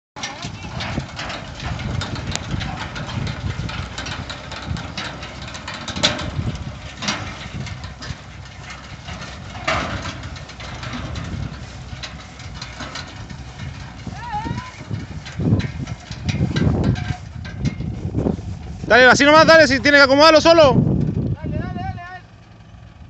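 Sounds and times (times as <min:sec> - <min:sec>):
sharp knocks from bale lift: 0:00.2 - 0:19.6
engine running steadily: 0:00.2 - 0:23.0.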